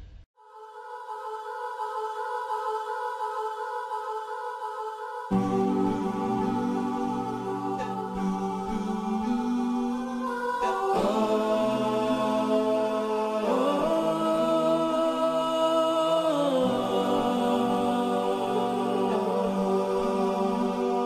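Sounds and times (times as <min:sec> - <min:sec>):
ambient music with held chords: 0:05.3 - 0:21.0.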